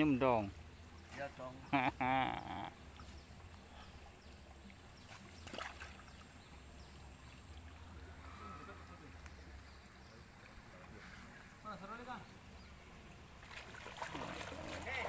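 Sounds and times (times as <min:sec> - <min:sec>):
fish splashing in water: 0:02.9 - 0:06.4, 0:13.4 - 0:15.0.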